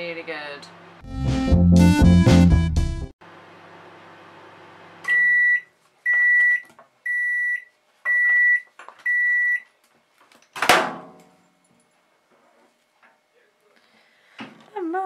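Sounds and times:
microwave running hum: 3.2 - 6.4
microwave high beeps: 5.1 - 9.7.

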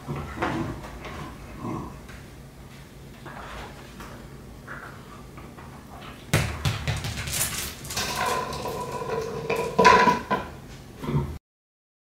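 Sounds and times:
dishes and utensils clinking: 7.8 - 10.5.

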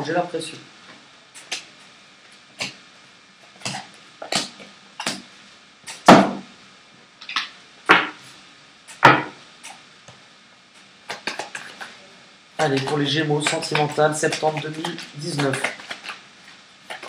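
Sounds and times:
cards being shuffled: 11.1 - 12.0, 12.6 - 17.0.

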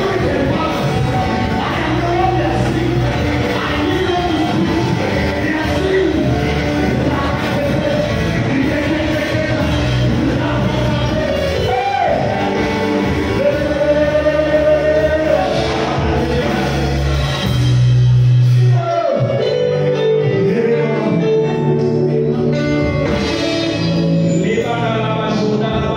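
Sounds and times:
voices singing gospel music: 0.0 - 17.8
instrumental backing: 0.0 - 25.9.

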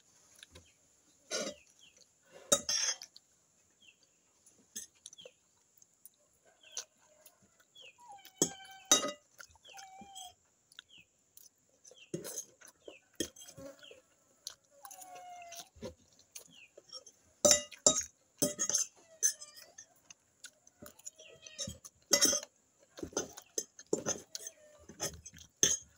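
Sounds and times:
chewing: 1.3 - 25.9
chickens clucking: 12.0 - 17.2
fork clinking on glass bowl: 21.6 - 22.5, 23.2 - 25.9.

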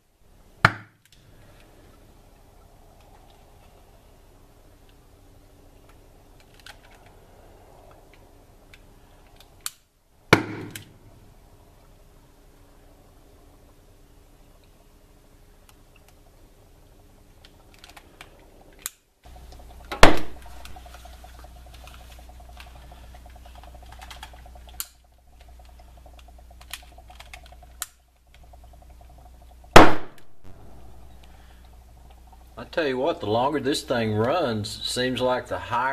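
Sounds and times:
steady low hum: 0.0 - 35.9
small clicks: 5.8 - 7.2, 7.8 - 9.9, 17.4 - 30.3
loud gas ignition pops: 10.3 - 11.1, 19.9 - 20.8, 29.7 - 31.7.

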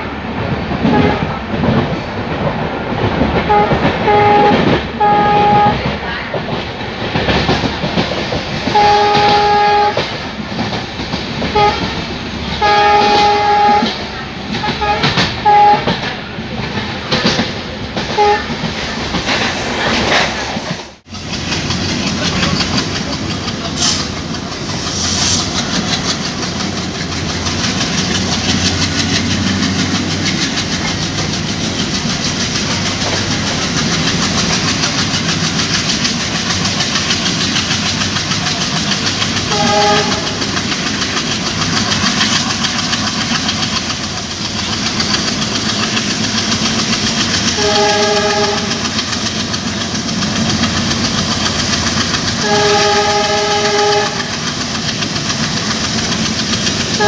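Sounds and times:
diesel locomotive hum: 0.0 - 57.0
wheel and rail noise: 0.0 - 57.0
wind: 0.0 - 57.0
train horn toots: 0.8 - 1.4, 3.4 - 6.0, 8.7 - 10.1, 11.5 - 12.0, 12.6 - 16.0, 18.1 - 18.7, 39.4 - 40.6, 47.5 - 49.0, 52.4 - 54.5.

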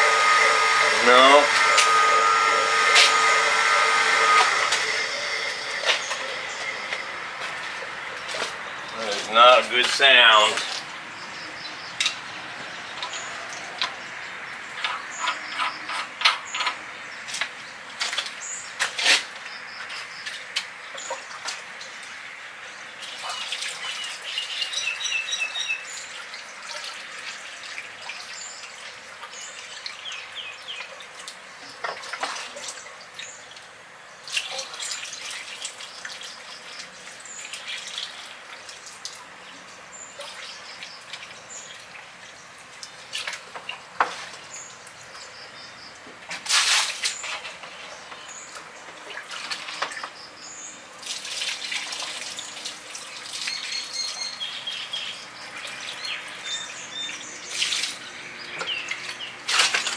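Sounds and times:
water running: 0.0 - 11.2, 51.0 - 54.0
birds chirping: 0.0 - 18.8, 19.4 - 31.9, 34.9 - 46.1, 47.1 - 51.0, 52.0 - 59.9.

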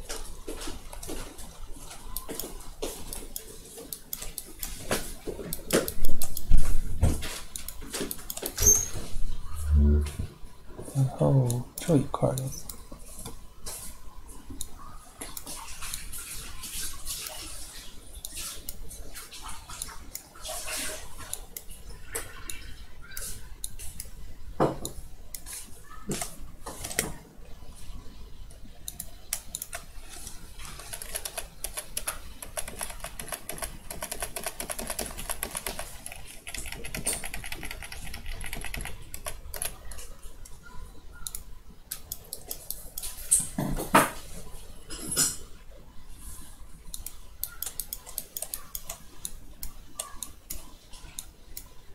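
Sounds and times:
computer keyboard typing: 30.7 - 40.0.

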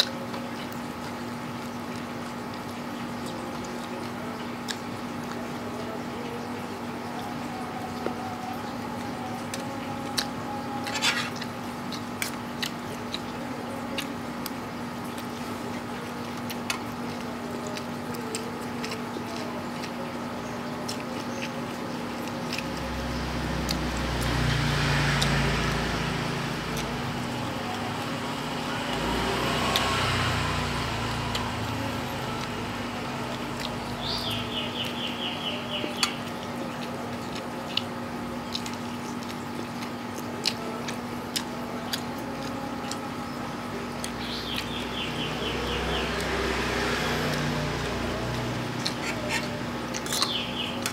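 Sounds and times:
wet chewing smacks: 0.0 - 6.0, 8.8 - 27.4, 35.8 - 43.1, 45.8 - 50.9
passing vehicle: 22.7 - 36.0, 43.7 - 50.9.

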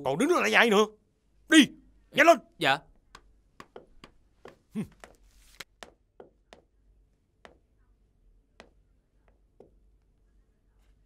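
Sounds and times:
walking cane tapping floor: 3.0 - 6.7, 7.4 - 7.7, 8.6 - 9.9
footsteps on floor: 3.6 - 6.3.

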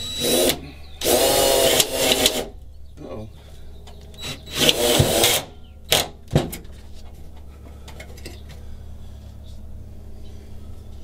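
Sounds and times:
cordless drill driving screw: 0.0 - 2.5, 4.2 - 6.0
steady low hum: 0.0 - 11.0.

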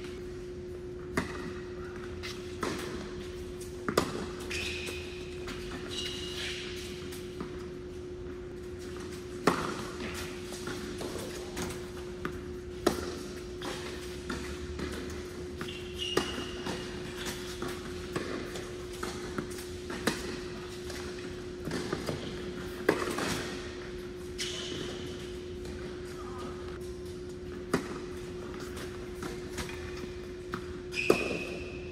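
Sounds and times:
tennis ball hit by rackets: 3.8 - 4.4, 9.4 - 23.6
shoe squeaks: 4.2 - 7.3, 15.5 - 18.0, 24.3 - 25.4, 29.7 - 31.9.

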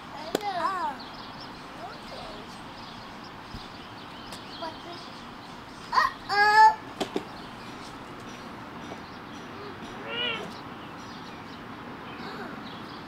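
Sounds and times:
child sing-song call: 5.8 - 6.9
child squealing: 5.9 - 6.8, 10.0 - 10.5.

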